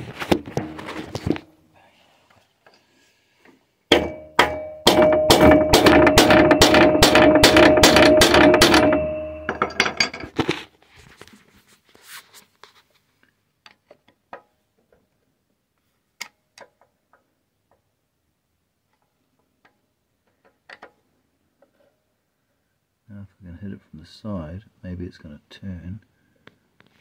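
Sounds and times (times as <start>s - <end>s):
hammer striking screwdriver: 3.9s - 9.8s.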